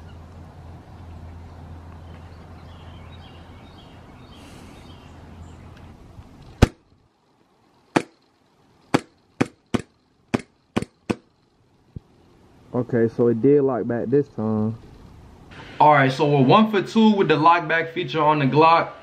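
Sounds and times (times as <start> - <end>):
airsoft pistol shots: 6.6 - 6.8, 8.0 - 8.2, 8.9 - 11.3.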